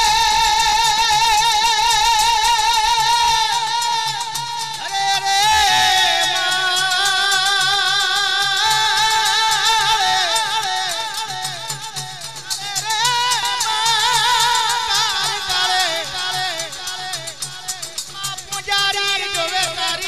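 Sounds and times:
steady drum beat: 0.0 - 20.0.

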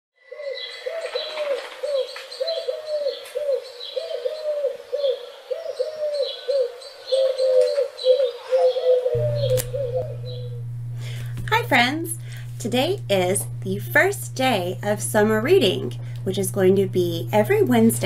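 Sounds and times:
pigeons cooing: 0.3 - 10.7.

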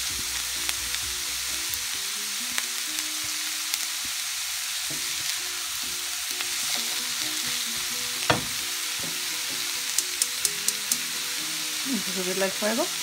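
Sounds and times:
vegetables sizzling in a skillet: 0.0 - 13.0
spatula knocking on pan: 7.8 - 9.8.

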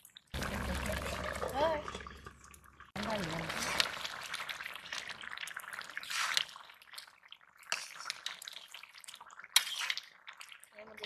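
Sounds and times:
curry sloshing and bubbling: 0.0 - 11.0.

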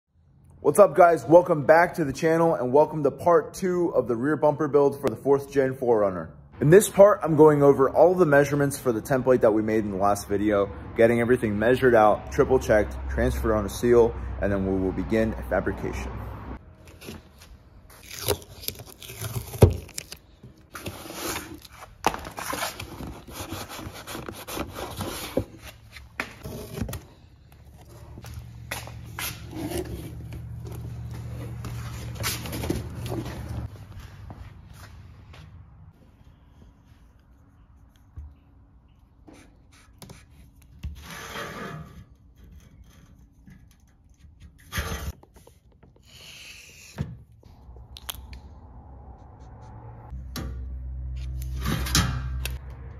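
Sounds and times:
cardboard scraping and rubbing: 20.7 - 27.2, 29.1 - 33.7.

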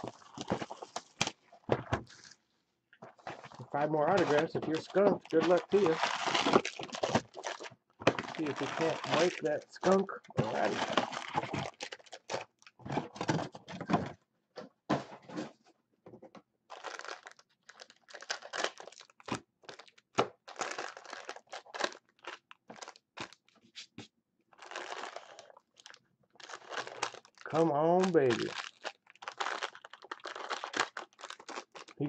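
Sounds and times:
foil wrappers crinkling and tearing: 0.0 - 1.4, 3.4 - 12.7, 16.7 - 23.5, 24.6 - 32.0.

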